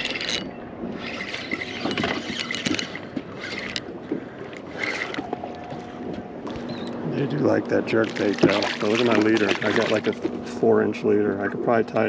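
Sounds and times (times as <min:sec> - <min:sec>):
fishing reel cranking and clicking: 0:00.0 - 0:03.9, 0:04.5 - 0:05.4.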